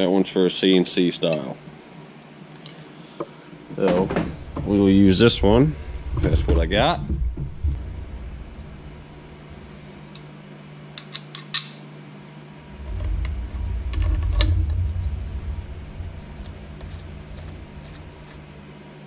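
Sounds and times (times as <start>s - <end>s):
low rumble of handling noise: 3.7s - 10.9s, 12.5s - 19.0s.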